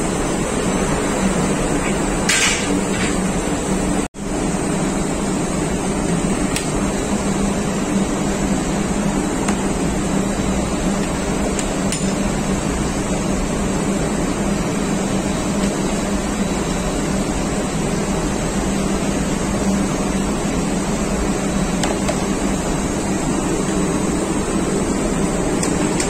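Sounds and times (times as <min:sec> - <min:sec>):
engine room machinery drone: 0:00.0 - 0:26.0.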